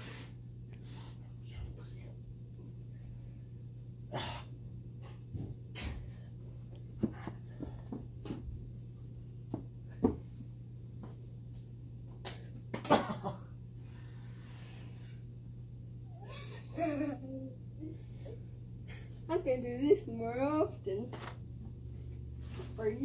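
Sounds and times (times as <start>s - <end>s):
steady low hum: 0.0s - 23.0s
breathy grunts: 4.1s - 4.6s.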